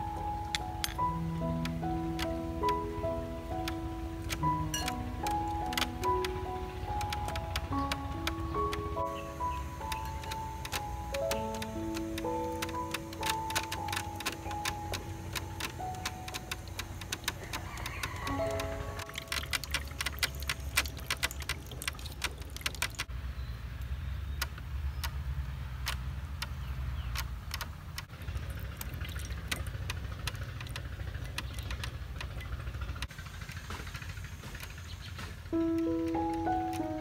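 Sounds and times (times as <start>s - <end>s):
clicks and taps of turning stone: 9.8s - 23.1s, 25.8s - 33.1s.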